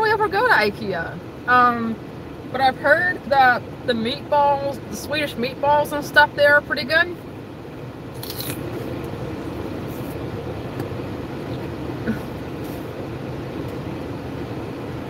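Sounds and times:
low rumble of car cabin: 0:00.0 - 0:15.0
crunchy chewing of celery: 0:08.2 - 0:09.0.

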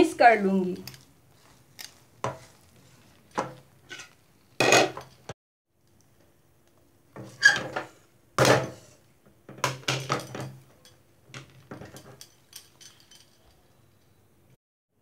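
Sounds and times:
spatula scraping a pan: 0:00.9 - 0:05.1, 0:07.2 - 0:08.0.

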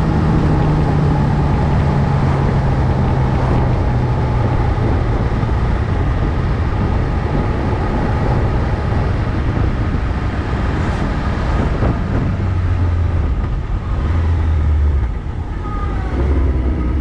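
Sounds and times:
wind rumble on microphone: 0:00.0 - 0:17.0
car swishing past: 0:08.3 - 0:17.0.

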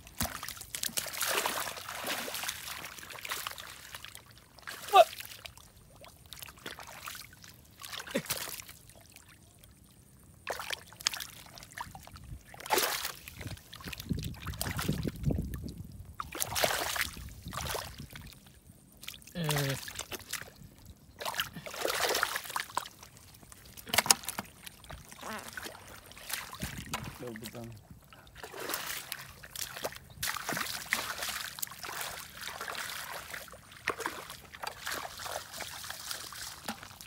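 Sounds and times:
hands splashing in muddy water: 0:00.0 - 0:05.6, 0:12.5 - 0:15.2, 0:16.2 - 0:18.2, 0:21.2 - 0:27.5, 0:28.4 - 0:37.0.

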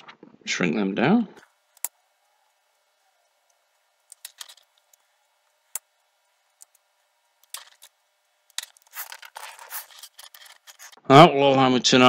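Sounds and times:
rustling scrapes of cables: 0:08.6 - 0:11.0.

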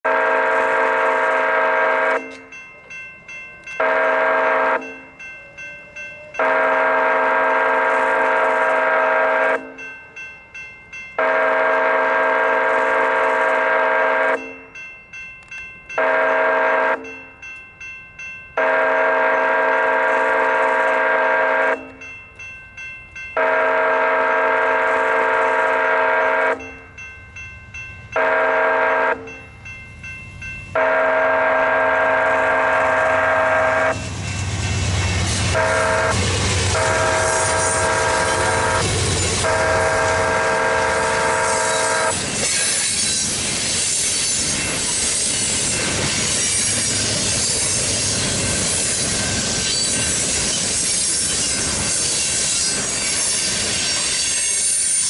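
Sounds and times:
train air horn blasts: 0:00.0 - 0:02.5, 0:03.8 - 0:05.0, 0:06.2 - 0:09.8, 0:11.2 - 0:14.5, 0:16.0 - 0:17.2, 0:18.6 - 0:22.0, 0:23.4 - 0:26.8, 0:28.2 - 0:29.4, 0:30.8 - 0:34.1, 0:35.4 - 0:43.0
crossing warning bell ringing: 0:00.0 - 0:55.0.

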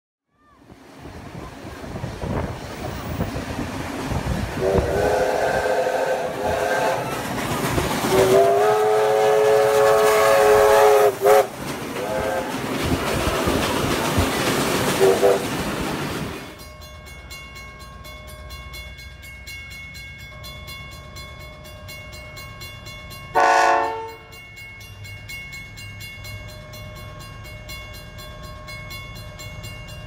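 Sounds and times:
passing train rumble: 0:00.3 - 0:30.0
steam whistle blasts: 0:04.6 - 0:07.2, 0:08.0 - 0:12.6, 0:15.0 - 0:15.5, 0:23.4 - 0:24.3.

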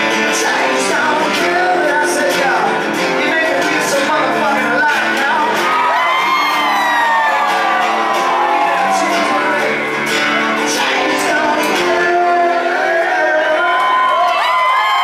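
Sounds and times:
acoustic guitars playing chords: 0:00.0 - 0:14.1
crowd shouting and clapping: 0:03.0 - 0:15.0.

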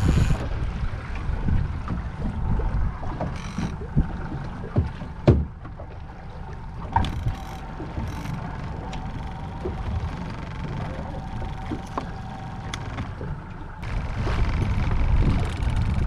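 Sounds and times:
water: 0:00.0 - 0:16.0
wind: 0:00.0 - 0:16.0
knocks on a boat: 0:03.1 - 0:05.8.

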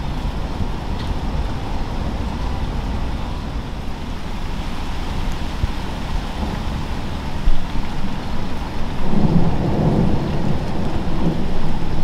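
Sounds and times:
heavy rain falling: 0:00.0 - 0:12.0
thunder rumbling: 0:08.6 - 0:12.0.

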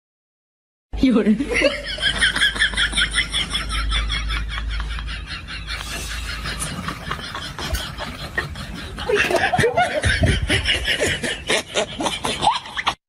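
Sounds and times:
person snickering and chuckling: 0:02.6 - 0:13.0.

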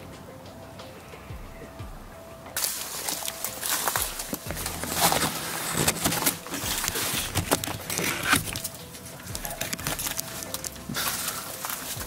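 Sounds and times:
brush and twigs crackling: 0:02.5 - 0:12.0
footsteps crunching in dead leaves: 0:02.6 - 0:12.0.

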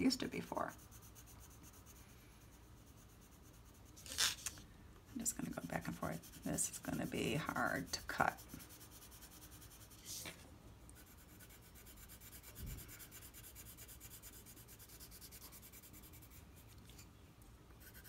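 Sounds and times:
colored pencil scratching on paper: 0:00.0 - 0:04.4, 0:05.1 - 0:10.4, 0:11.0 - 0:17.0, 0:17.8 - 0:18.0
paper rustle: 0:04.0 - 0:04.6.

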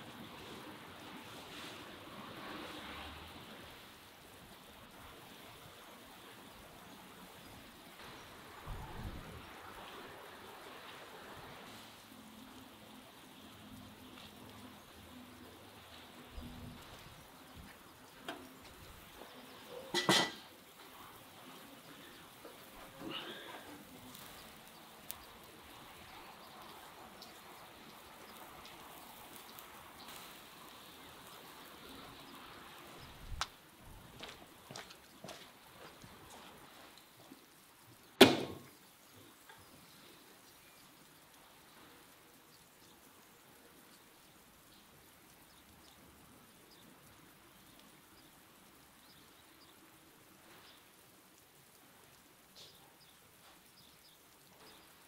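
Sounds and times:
faint steady hiss: 0:00.0 - 0:55.0
rain falling on ground: 0:00.0 - 0:55.0
faint ticks: 0:20.8 - 0:33.6, 0:39.0 - 0:55.0
thump: 0:38.2 - 0:38.7.

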